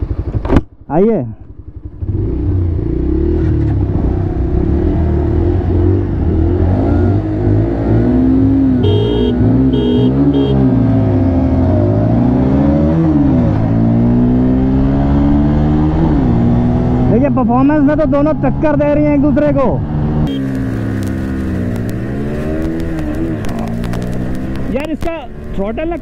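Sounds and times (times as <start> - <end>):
motorcycle engines revving: 1.5 - 26.0
short beeps: 8.8 - 10.7.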